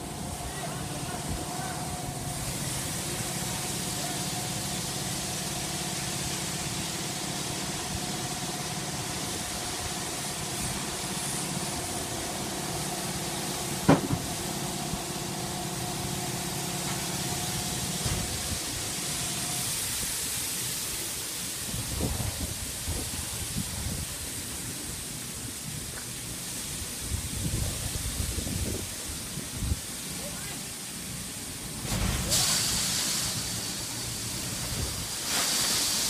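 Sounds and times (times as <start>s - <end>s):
machinery humming: 0.0s - 20.3s
constant hiss: 0.0s - 36.0s.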